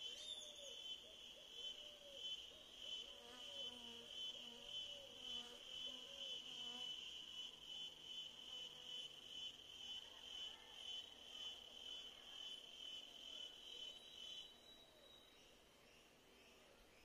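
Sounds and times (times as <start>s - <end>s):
high-pitched insect trill: 12.5s - 15.4s.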